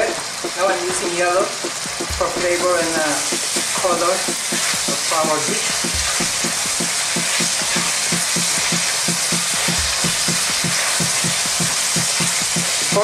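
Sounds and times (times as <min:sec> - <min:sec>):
food sizzling in a wok: 0:00.0 - 0:13.0
steady low pulse: 0:01.5 - 0:11.3.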